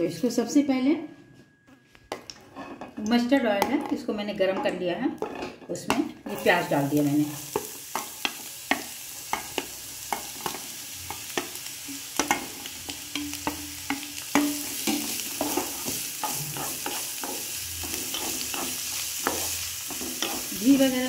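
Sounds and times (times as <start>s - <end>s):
onion sizzling in oil: 6.2s - 21.0s
spatula tapping on steel plate: 12.2s - 17.4s.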